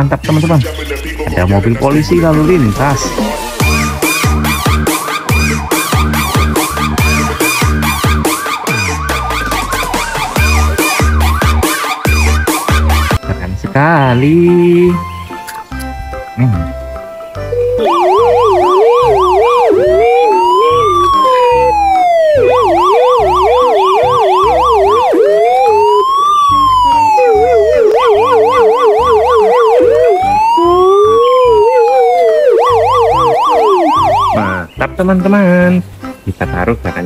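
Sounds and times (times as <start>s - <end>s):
toy electronic siren: 2.0s - 13.2s, 17.4s - 34.6s.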